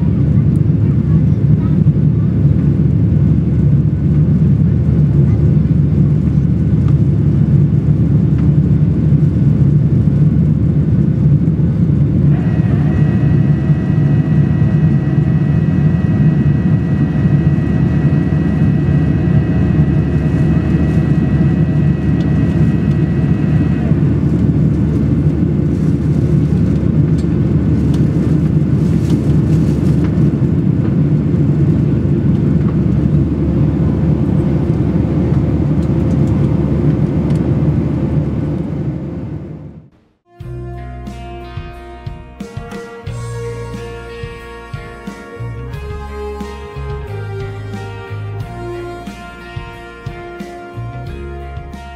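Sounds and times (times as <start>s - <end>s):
jet engine roar in cabin: 0.0s - 40.2s
high whine: 0.0s - 51.9s.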